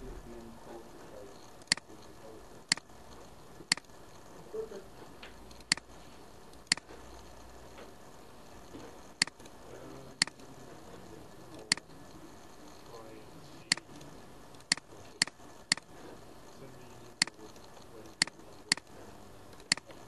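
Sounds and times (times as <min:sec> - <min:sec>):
faint steady hiss: 0:00.0 - 0:20.0
computer mouse clicks: 0:01.6 - 0:02.0, 0:02.7 - 0:04.0, 0:05.2 - 0:07.3, 0:09.2 - 0:09.6, 0:11.6 - 0:12.8, 0:13.6 - 0:15.9, 0:17.2 - 0:18.9, 0:19.5 - 0:20.0.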